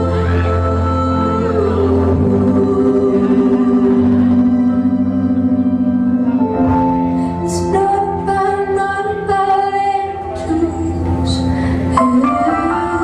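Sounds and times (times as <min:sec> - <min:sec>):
woman singing slow song: 0:00.0 - 0:06.4, 0:07.3 - 0:13.0.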